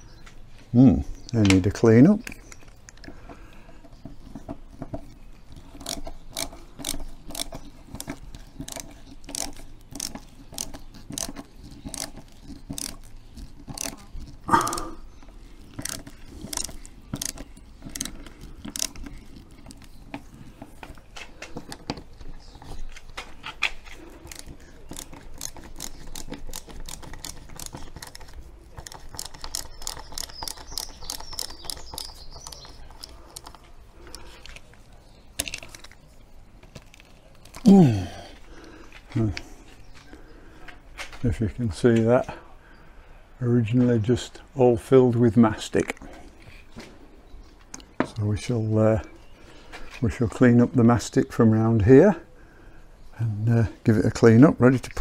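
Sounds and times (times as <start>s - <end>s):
screwdriver clicking: 5.0s - 14.4s, 15.3s - 20.3s, 24.2s - 34.6s.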